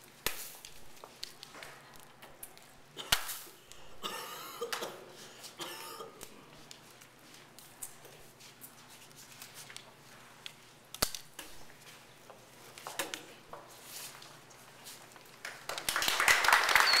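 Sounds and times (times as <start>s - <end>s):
audience applause: 15.4s - 17.0s.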